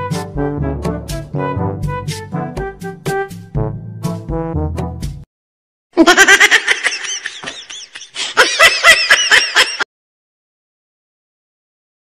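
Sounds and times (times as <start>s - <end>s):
high-pitched laughter: 6.0s - 9.9s.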